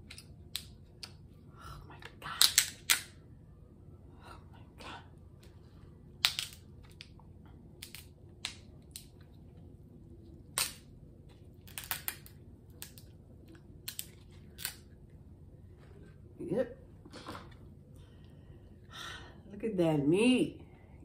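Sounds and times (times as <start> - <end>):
crab shell cracking: 11.6 - 13.1.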